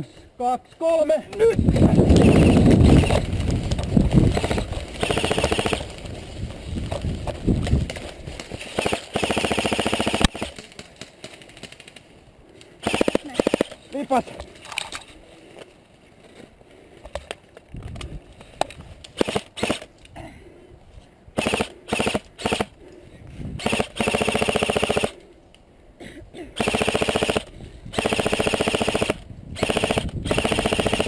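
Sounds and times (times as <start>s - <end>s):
buzzing whirr: 1.8s - 7.7s, 26.6s - 31.0s
airsoft gun full auto fire: 4.3s - 5.9s, 8.8s - 10.6s, 12.8s - 13.8s, 19.2s - 19.9s, 21.4s - 22.7s, 23.6s - 25.2s, 26.6s - 31.0s.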